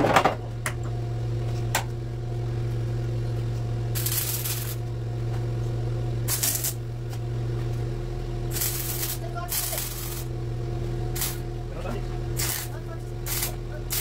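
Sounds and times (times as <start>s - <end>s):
electrical hum: 0.0s - 14.0s
welder arc crackling: 3.8s - 14.0s.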